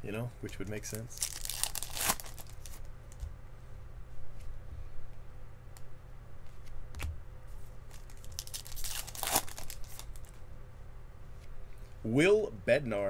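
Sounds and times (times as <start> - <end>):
card pack wrappers crinkling: 0.5 - 2.9, 7.9 - 10.4.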